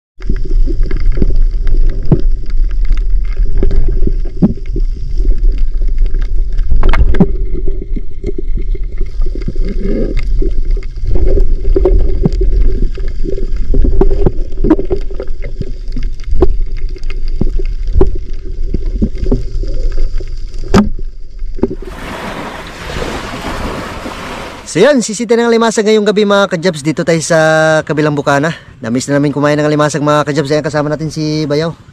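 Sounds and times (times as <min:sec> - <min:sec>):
underwater clicks and knocks: 0:00.2 - 0:21.8
underwater rumble of moving water: 0:00.2 - 0:25.2
steady hiss: 0:08.5 - 0:25.2.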